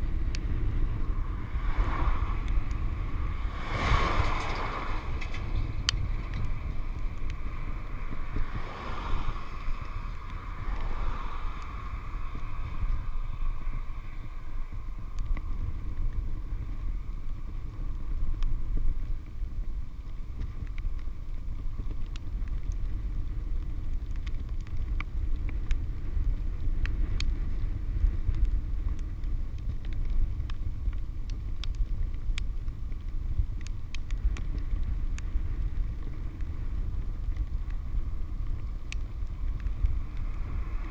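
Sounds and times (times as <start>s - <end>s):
bicycle tyre noise: 0.0s - 40.9s
wind buffeting camera: 0.0s - 40.9s
faint clicks: 28.3s - 36.5s, 38.4s - 40.3s.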